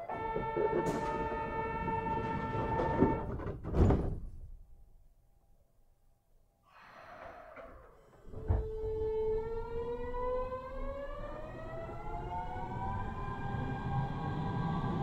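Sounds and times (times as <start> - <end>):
thud: 2.8 - 4.4
train motor whine rising: 7.3 - 15.0.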